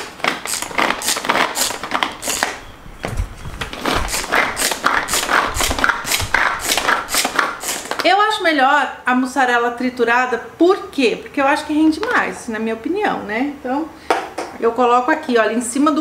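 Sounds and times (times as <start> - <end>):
food chopper blades whirring: 0.0 - 2.6, 3.6 - 8.1.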